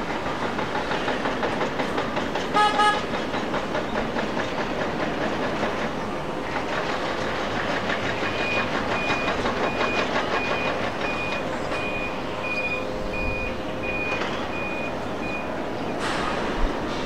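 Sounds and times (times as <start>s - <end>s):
reversing alarm beeping: 8.2s - 16.0s.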